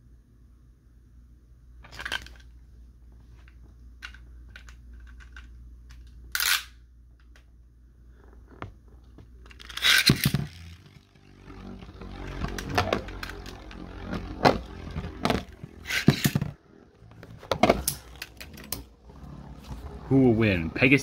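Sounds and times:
spinning tops clacking together: 0:09.4 - 0:11.0, 0:12.2 - 0:16.6
spinning tops whirring: 0:09.4 - 0:20.6
spinning tops launched with ripping burst: 0:09.5 - 0:16.7.

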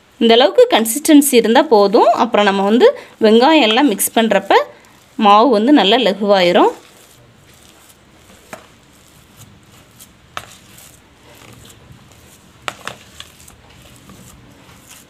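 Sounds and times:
spoon stirring thick batter: 0:00.6 - 0:15.0.

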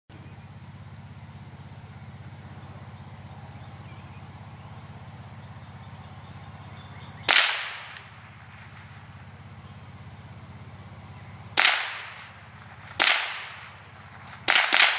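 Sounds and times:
steady low hum: 0:00.1 - 0:14.9
gunshot: 0:07.3 - 0:08.0, 0:11.6 - 0:12.2, 0:12.9 - 0:13.7, 0:14.5 - 0:14.9.

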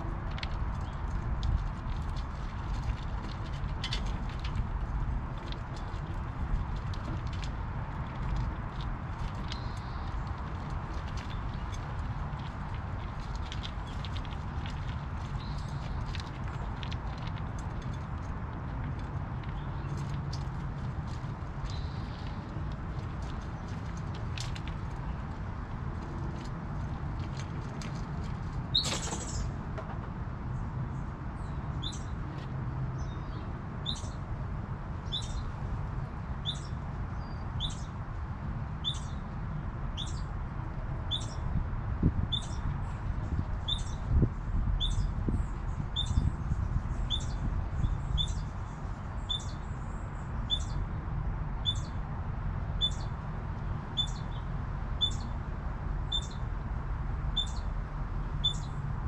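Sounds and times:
low background rumble: 0:00.0 - 0:32.2.

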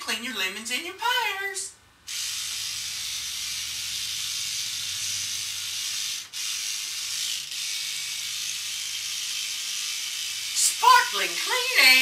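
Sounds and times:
faint low motor hum: 0:00.0 - 0:12.0
toothbrush bristles rubbing tiles: 0:02.1 - 0:11.3.

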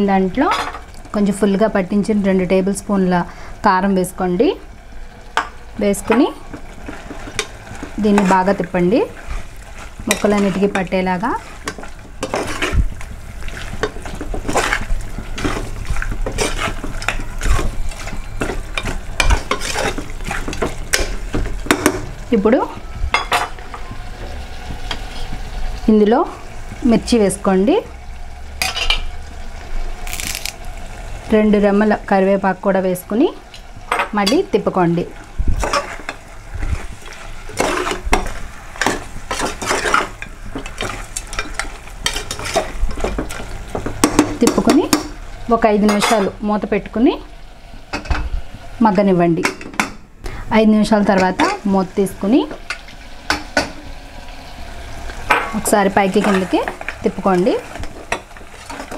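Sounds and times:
masala sizzling: 0:00.0 - 0:58.9
spoon scraping metal pot: 0:16.2 - 0:20.7.

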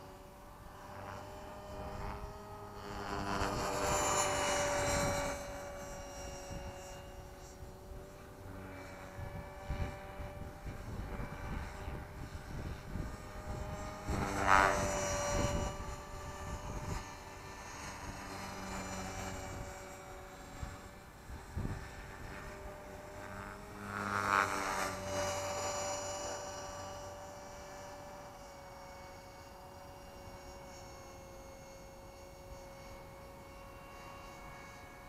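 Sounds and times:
rc helicopter rotor whine: 0:00.0 - 0:35.0
wind rumble on microphone: 0:01.1 - 0:27.8.

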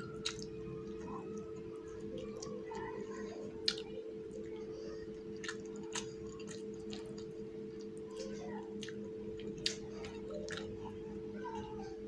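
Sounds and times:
person chewing food: 0:00.0 - 0:11.8
steady low hum: 0:00.0 - 0:12.0
wet lip-smacks and clicks: 0:00.2 - 0:00.5, 0:03.6 - 0:04.6, 0:05.4 - 0:10.7.

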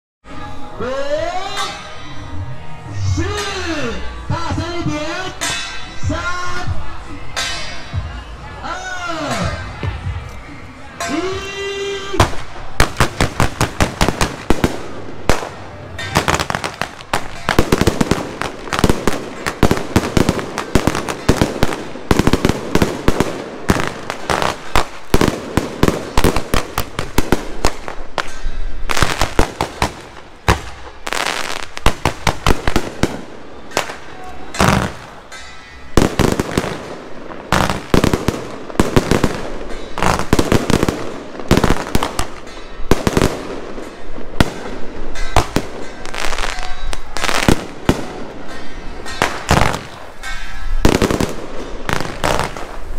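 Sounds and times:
fireworks bangs and crackling: 0:12.1 - 0:52.9.

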